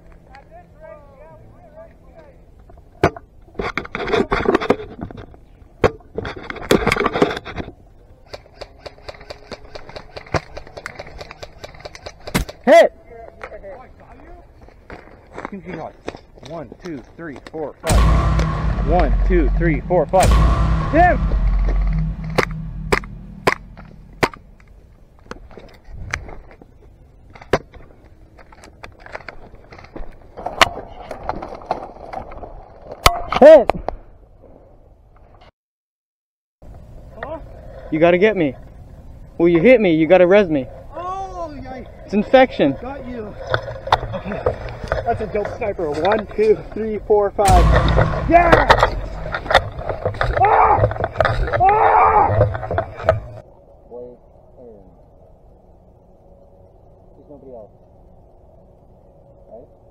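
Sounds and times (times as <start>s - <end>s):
sharp cracks: 17.9s - 24.8s, 47.5s - 53.4s.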